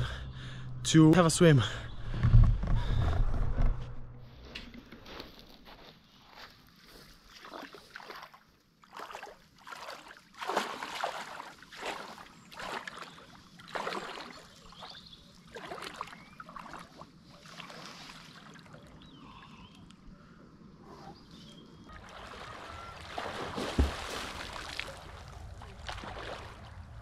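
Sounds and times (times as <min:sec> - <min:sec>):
water splashing from swimming: 0:07.3 - 0:19.0, 0:21.9 - 0:27.0.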